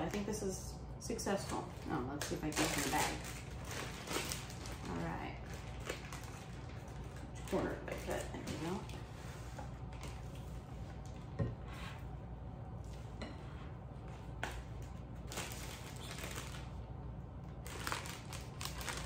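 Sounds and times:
steady low hum: 0.0s - 19.0s
plastic bag crinkling: 1.4s - 8.9s, 15.2s - 16.8s, 17.4s - 19.0s.

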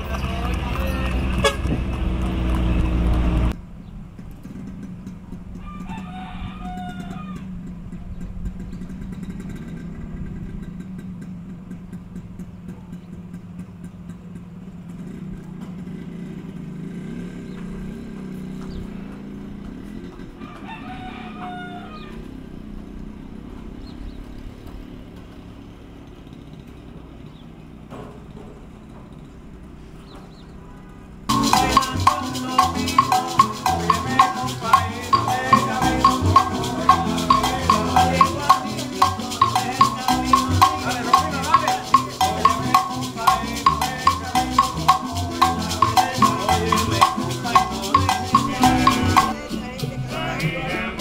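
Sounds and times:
rooster crowing: 5.6s - 7.7s, 20.3s - 22.4s.

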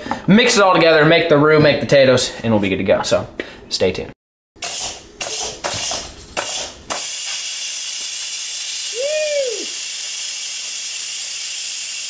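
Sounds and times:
pressure cooker valve hissing steam: 4.6s - 12.0s
rising and falling hoot: 9.0s - 9.8s.

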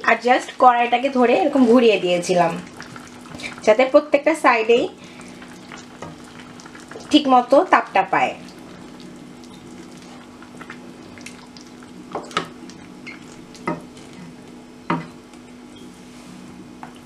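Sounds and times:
steady low hum: 0.0s - 17.0s.

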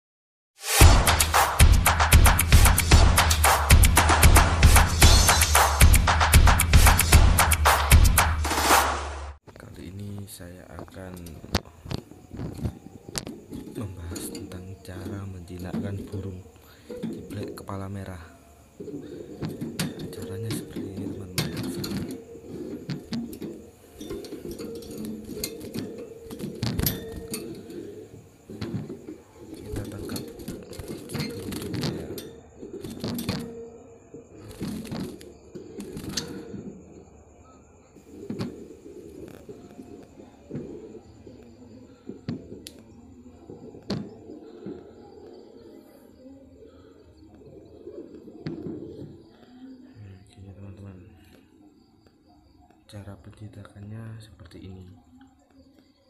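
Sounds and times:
wire birdcage rattling: 19.3s - 33.6s.

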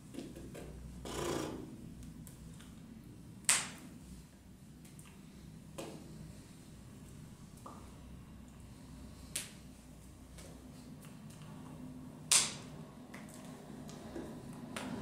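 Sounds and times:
low room hum: 0.0s - 15.0s
hands slapping together: 3.5s - 3.8s, 12.3s - 14.0s.

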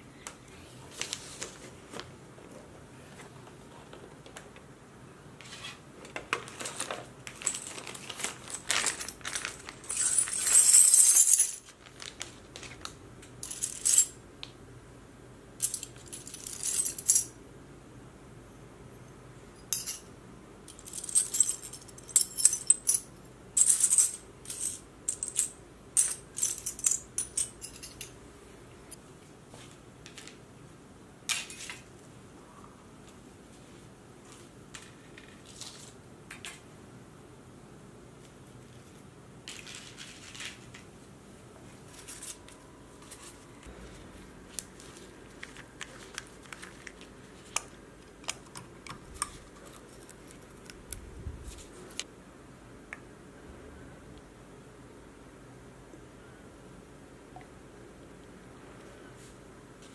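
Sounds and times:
metal pieces clinking and rattling: 7.3s - 11.7s.

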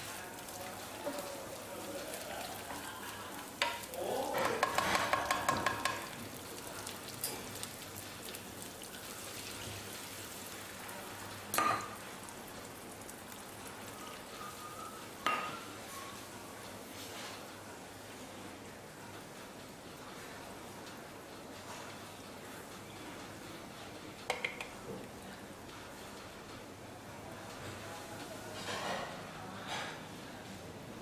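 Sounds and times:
curry paste sizzling in oil: 0.0s - 18.6s
spatula knocking on pan: 3.6s - 6.2s, 24.3s - 24.8s.

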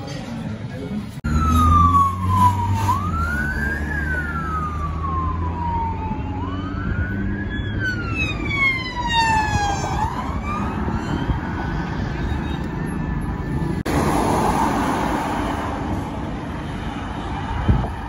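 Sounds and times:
traffic noise: 0.0s - 18.0s
higher siren: 1.2s - 13.8s
police sirens wailing: 1.2s - 13.9s, 14.8s - 18.0s.

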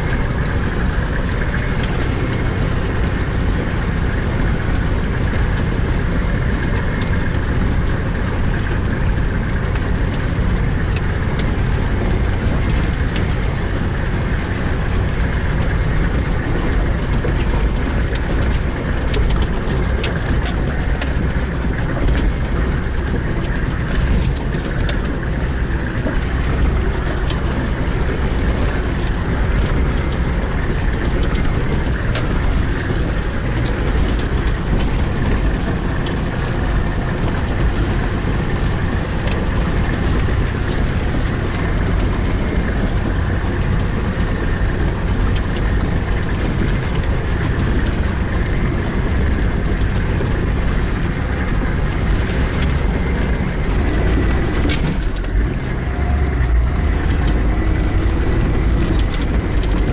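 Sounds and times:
knocks and rattles: 0.0s - 59.9s
vehicle engine running under load: 0.0s - 59.9s.

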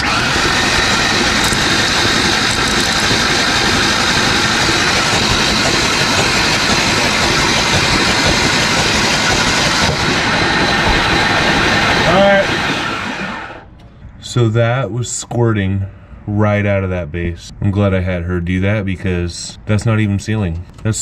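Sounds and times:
starter motor cranking engine: 0.0s - 13.7s.

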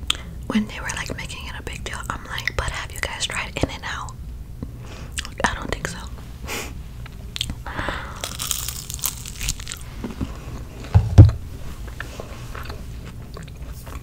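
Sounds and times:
person chewing and crunching: 7.4s - 10.1s, 11.9s - 14.0s
loud low thump: 11.0s - 11.5s.

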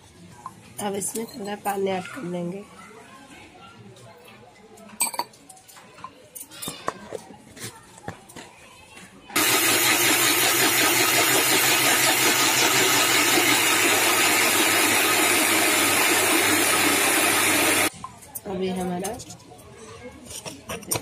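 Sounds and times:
mixer grinder grinding: 9.4s - 17.9s.

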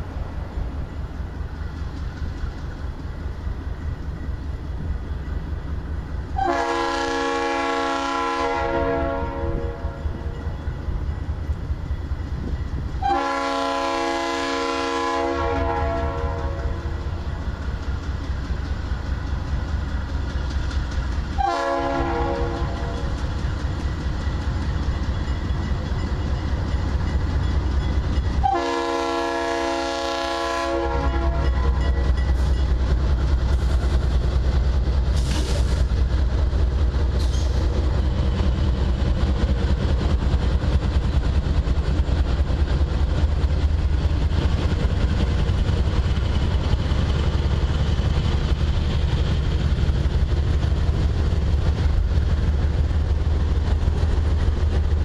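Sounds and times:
locomotive engine rumble: 0.0s - 55.0s
locomotive air horn blasts: 6.4s - 10.0s, 13.0s - 17.0s, 21.4s - 23.1s, 28.4s - 31.8s.

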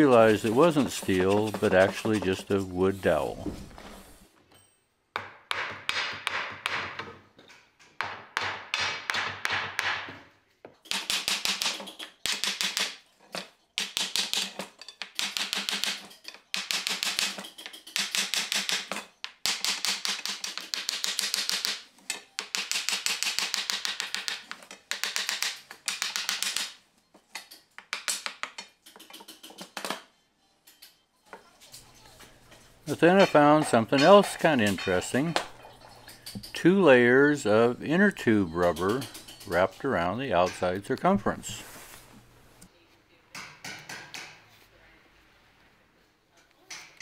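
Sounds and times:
hand saw cutting wood: 0.0s - 3.2s.

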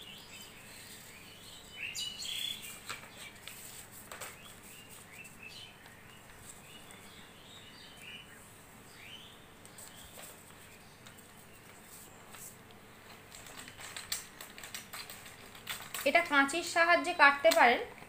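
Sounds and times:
small birds chirping: 0.0s - 18.0s
paper being folded: 2.5s - 7.0s, 9.6s - 16.3s.

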